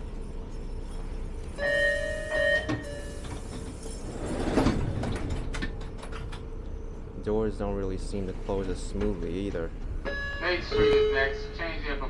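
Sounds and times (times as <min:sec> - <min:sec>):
subway door chime: 0:00.0 - 0:07.2, 0:08.5 - 0:12.0
sliding doors closing with clatter: 0:02.1 - 0:06.7.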